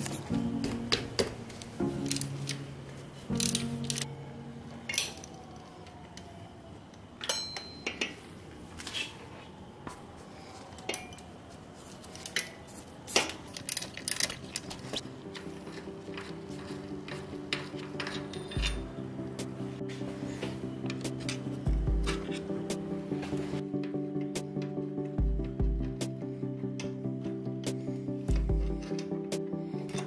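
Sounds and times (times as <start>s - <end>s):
ratchet clinking against metal: 13.2s - 19.0s.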